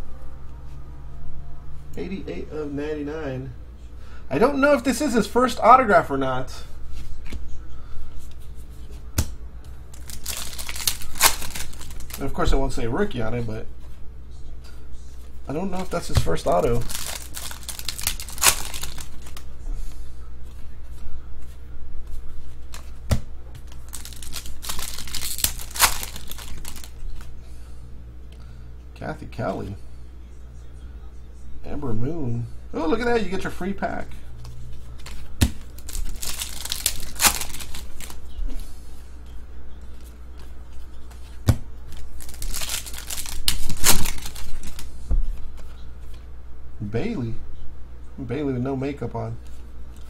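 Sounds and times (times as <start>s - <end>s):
foil wrapper tearing and crinkling: 10.0s - 12.4s, 16.4s - 19.4s, 23.7s - 27.0s, 35.7s - 38.2s, 42.2s - 44.9s.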